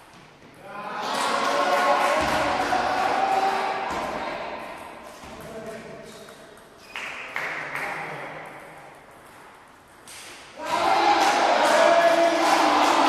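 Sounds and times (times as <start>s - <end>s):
loud voices: 0.6s - 5.0s, 10.5s - 13.0s.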